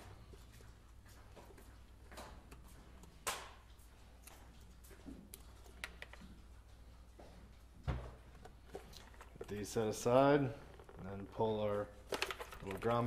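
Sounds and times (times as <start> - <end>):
plastic clicks and handling noises: 12.0 - 13.0.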